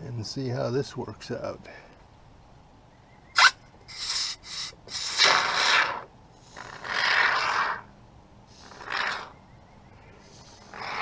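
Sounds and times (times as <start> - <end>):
spray foam can hissing: 3.4 - 5.4.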